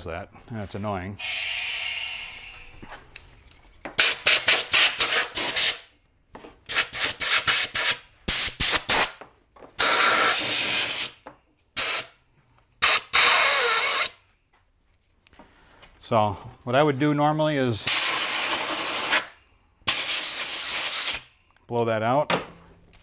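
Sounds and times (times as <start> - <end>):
compressed air hissing blasts: 1.2 - 2.9, 4.0 - 5.9, 6.7 - 9.2, 9.8 - 11.2, 11.8 - 12.2, 12.8 - 14.2, 17.8 - 21.4.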